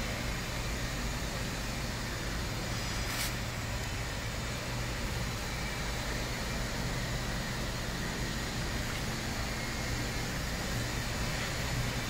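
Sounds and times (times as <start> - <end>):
brief hiss: 2.8 - 3.4.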